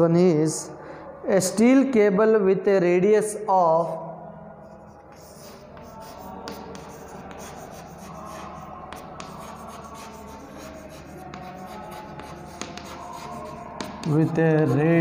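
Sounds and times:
chalk scratching on chalkboard: 4.6s - 15.0s
chalk tapping on chalkboard: 5.1s - 15.0s.

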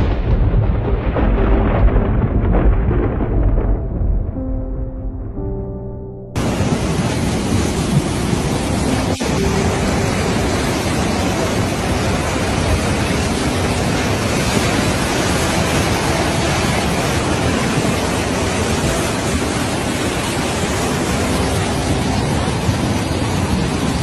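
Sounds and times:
storm wind and water rushing: 0.0s - 5.7s, 6.4s - 24.0s.

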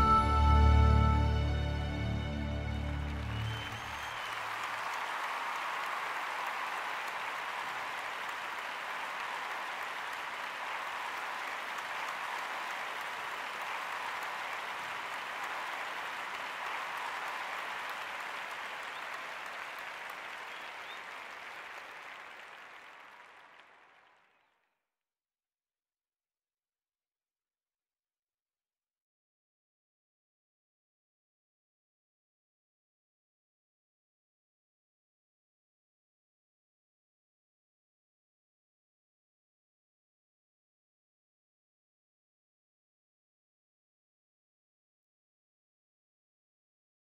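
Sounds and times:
audience applause: 2.3s - 24.5s.

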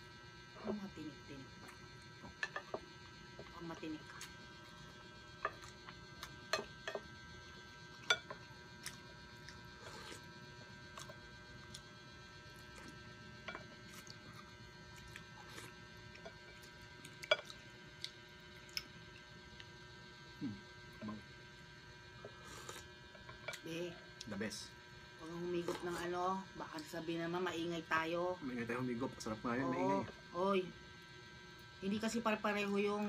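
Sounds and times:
steady electrical hum: 0.0s - 33.0s
chewing: 8.1s - 19.7s.

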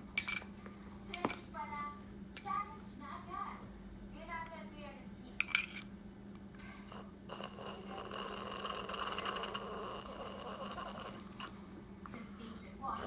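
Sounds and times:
toddler slurping milk: 6.9s - 11.6s.

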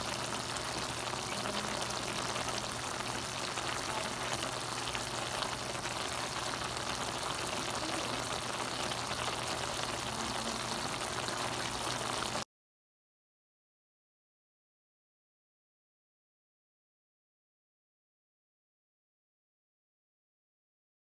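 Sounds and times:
vegetables sizzling in a pan: 0.0s - 12.4s.

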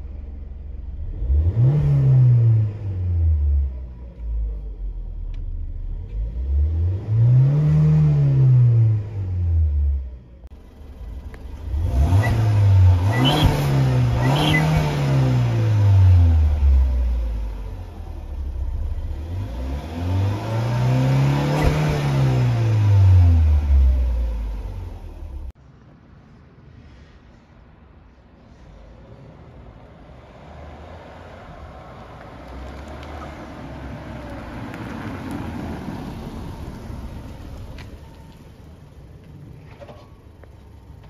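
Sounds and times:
car engine revving: 0.0s - 25.6s.

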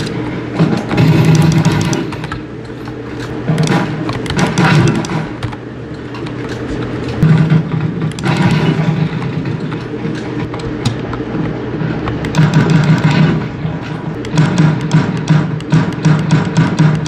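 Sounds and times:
mechanical keyboard keys clacking: 0.8s - 7.2s.

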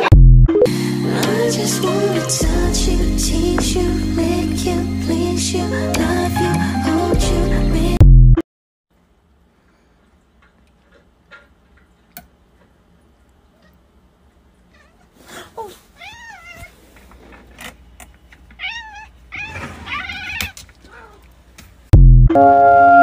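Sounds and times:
cat meowing: 14.7s - 15.2s, 16.0s - 16.8s, 18.6s - 21.3s.

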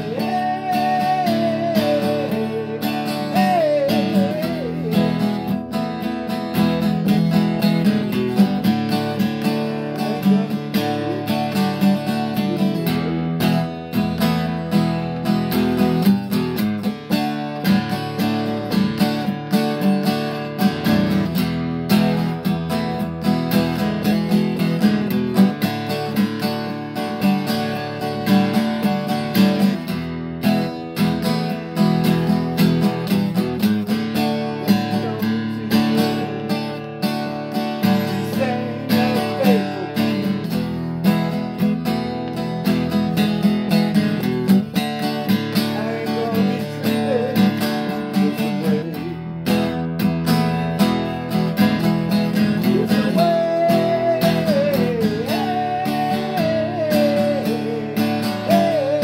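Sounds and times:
acoustic guitar strumming: 0.0s - 59.0s.

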